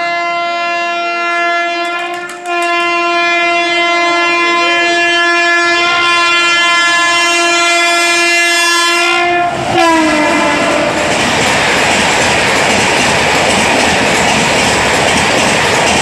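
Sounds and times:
locomotive horn long blast: 0.0 - 11.1
wheels clickety-clack: 1.8 - 2.9, 10.4 - 16.0.

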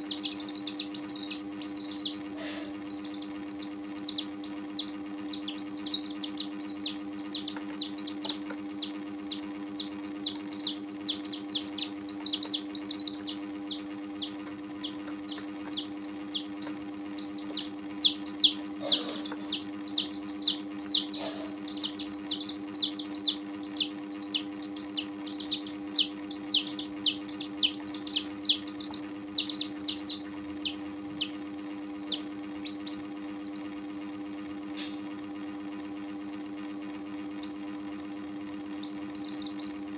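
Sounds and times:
chicks peeping: 0.0 - 34.5, 36.2 - 39.9
steady low hum: 0.0 - 39.9.

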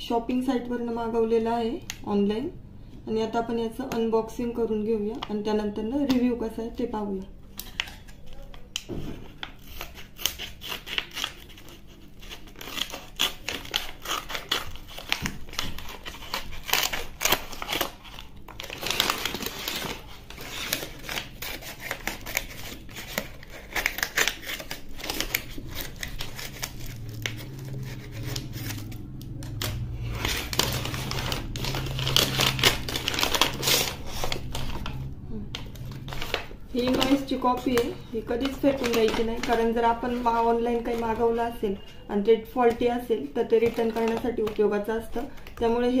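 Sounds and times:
scissors snipping paper: 8.4 - 35.0
paper envelope crinkling: 9.4 - 41.6, 43.6 - 45.6.

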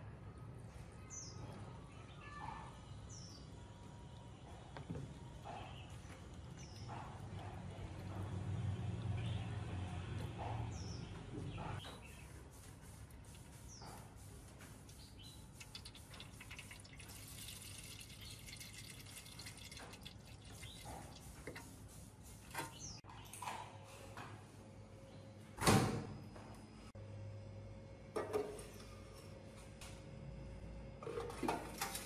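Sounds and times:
water trickling into tray: 15.6 - 21.6.

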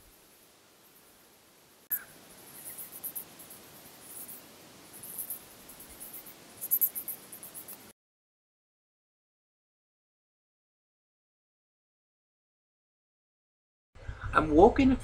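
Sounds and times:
crickets chirping: 0.0 - 7.9.

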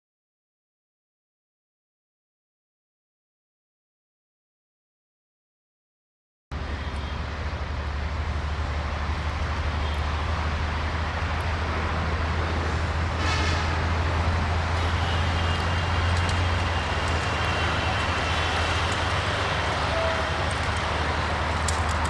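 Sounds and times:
diesel locomotive droning: 6.5 - 22.0.

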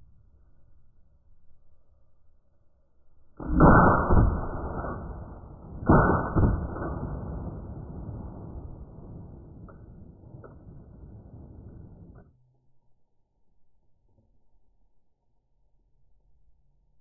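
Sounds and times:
shotgun shots with echo: 3.4 - 12.2.

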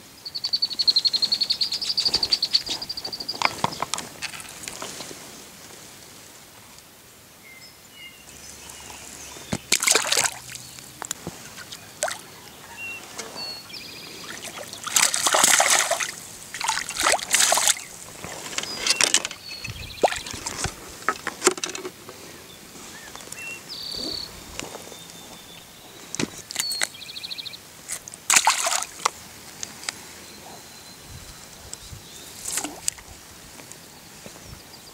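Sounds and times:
water splashing: 8.7 - 21.6, 28.2 - 29.2.

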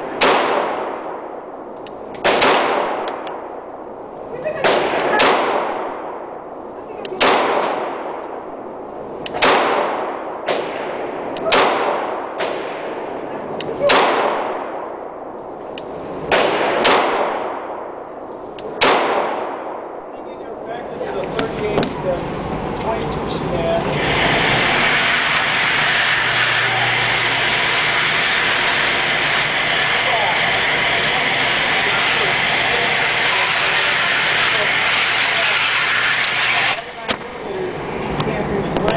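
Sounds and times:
pistol shots echoing: 0.0 - 1.4, 2.2 - 3.6, 4.6 - 6.4, 7.2 - 8.4, 9.3 - 13.2, 13.8 - 15.2, 16.3 - 18.1, 18.7 - 20.0
target carrier mechanical hiss: 21.1 - 38.2.

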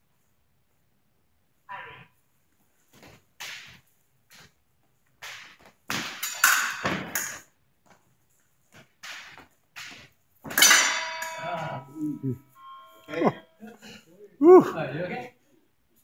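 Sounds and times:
clatter of fencing blades: 5.2 - 7.5, 8.8 - 11.6.

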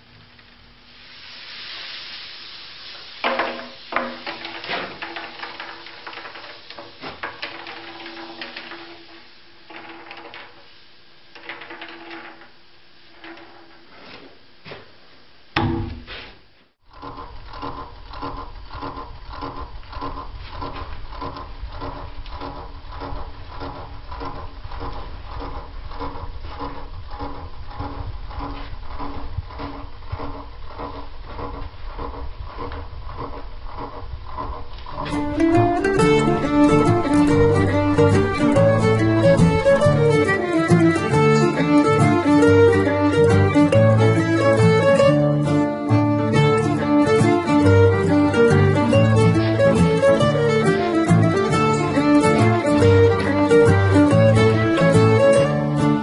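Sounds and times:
knocks: 15.6 - 16.3
lathe motor hum: 16.9 - 56.0
machine pulsing: 16.9 - 56.0.

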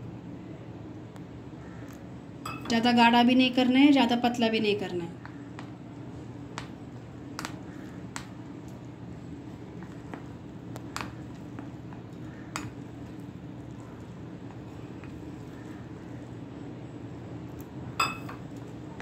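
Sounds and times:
spoon stirring thick batter: 6.5 - 17.8
spoon knocking bowl: 18.0 - 18.4.

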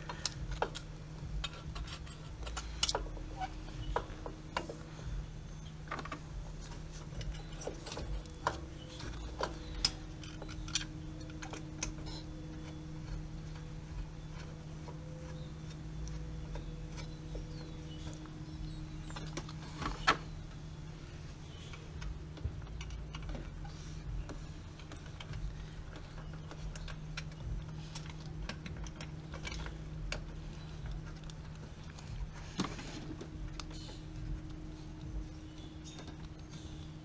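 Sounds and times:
steady low hum: 0.0 - 37.0
small metallic clicks and clinks: 21.5 - 36.9.

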